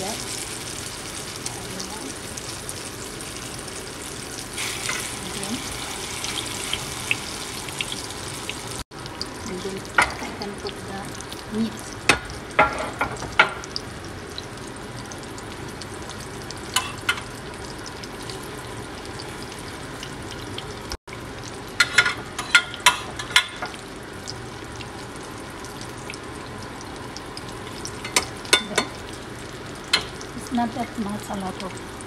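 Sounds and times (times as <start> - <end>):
food sizzling in a skillet: 0.0 - 32.0
metal spoon scraping a pan: 21.8 - 23.6.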